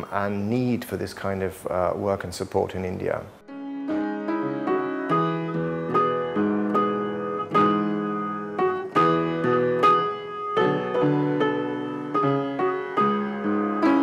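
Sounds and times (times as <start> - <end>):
piano background music: 2.9 - 14.0.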